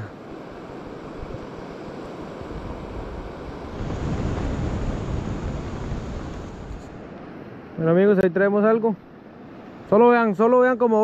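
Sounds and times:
river water rushing: 0.0s - 7.9s
wind buffeting microphone: 1.0s - 7.1s.

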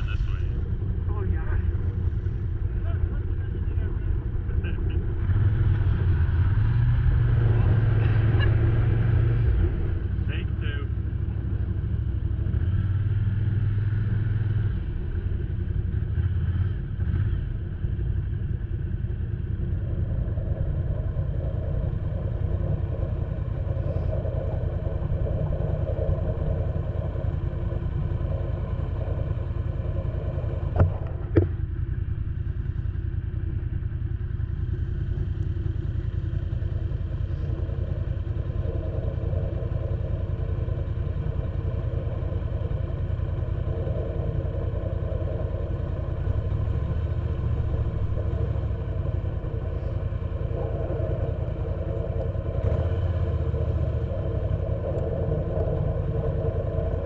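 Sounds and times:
snowmobile engine idling: 0.0s - 57.0s.

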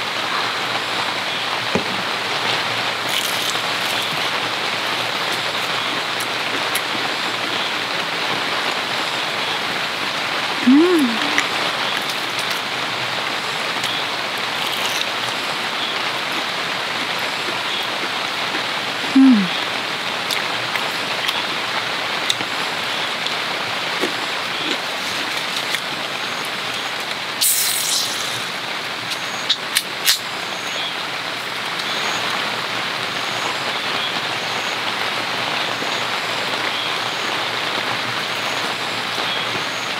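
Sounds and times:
heavy rain pattering on tent: 0.0s - 39.9s
person humming: 10.6s - 11.5s, 19.2s - 19.6s
drink can opening hiss: 27.4s - 28.5s.

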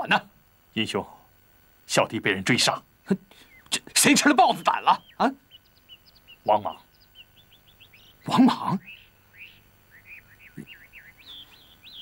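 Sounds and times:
small birds chirping: 0.0s - 12.0s
man speaking: 1.9s - 5.4s, 6.5s - 6.9s.

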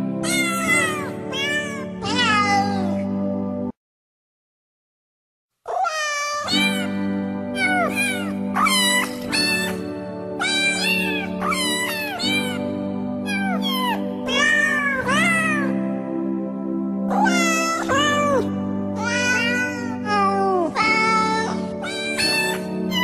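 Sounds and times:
background music with sustained tones: 0.0s - 3.8s, 6.6s - 23.0s
cats meowing: 0.2s - 3.0s, 5.7s - 7.0s, 7.6s - 9.8s, 10.4s - 15.8s, 17.1s - 23.0s.

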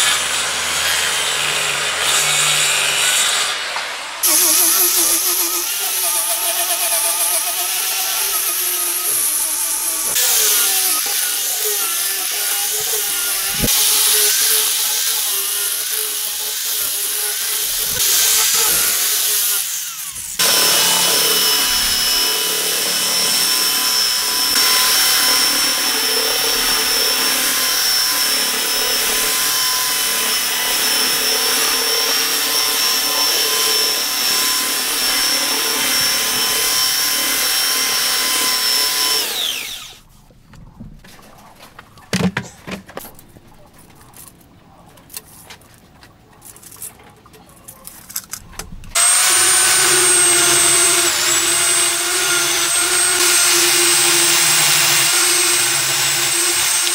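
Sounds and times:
power tool high whine: 0.0s - 40.0s, 48.9s - 56.9s
angle grinder sanding wood: 0.0s - 40.2s, 48.9s - 56.9s.

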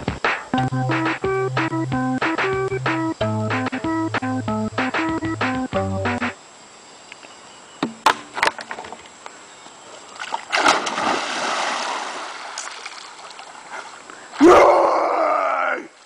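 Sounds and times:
electronic keyboard tune: 0.0s - 6.4s
person diving into water splash: 10.4s - 13.0s
water churning: 10.4s - 13.9s.

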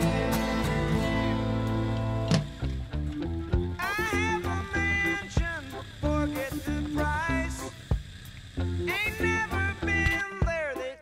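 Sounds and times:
sliding lead melody: 0.0s - 7.8s
bass line: 0.0s - 10.8s.

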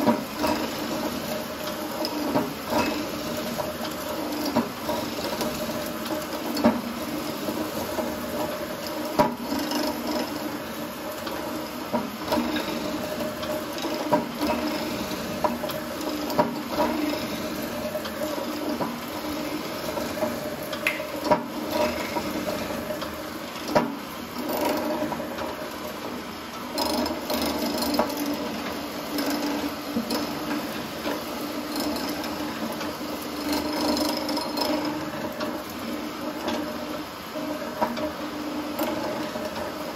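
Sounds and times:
motor hum: 0.0s - 26.0s.

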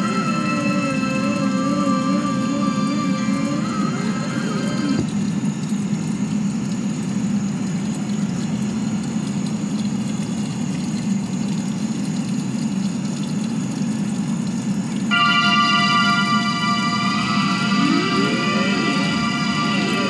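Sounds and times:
low droning rumble: 15.1s - 20.0s.

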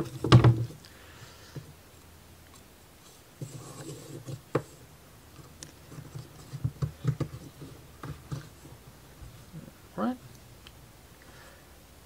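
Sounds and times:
wooden clicks and scrapes: 0.0s - 0.9s, 2.5s - 8.8s.

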